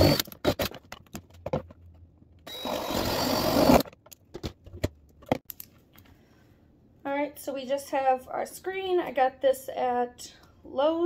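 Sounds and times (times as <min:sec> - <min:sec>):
cordless drill boring plastic: 0:00.0 - 0:00.7, 0:02.5 - 0:03.9.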